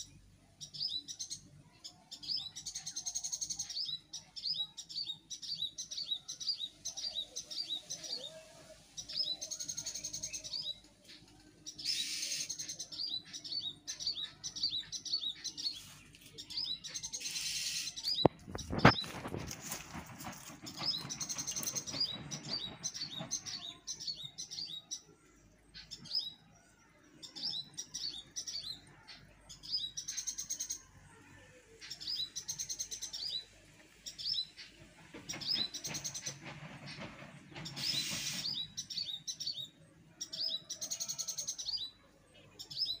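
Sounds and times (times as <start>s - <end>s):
birds chirping and singing: 0.0s - 43.0s
rustle-like burst of noise: 17.2s - 22.0s.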